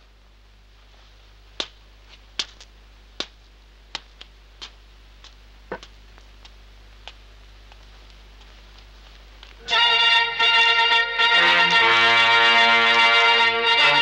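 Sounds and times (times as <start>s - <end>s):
steady low hum: 0.0s - 14.0s
footsteps on stone: 1.6s - 9.6s.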